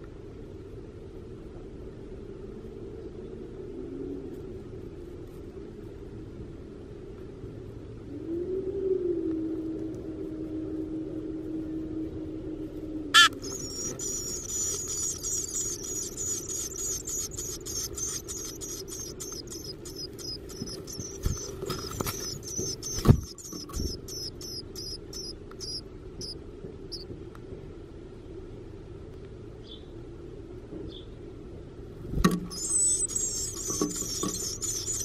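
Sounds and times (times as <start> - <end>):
nestlings begging chips: 13.2 - 27.0, 32.4 - 35.0.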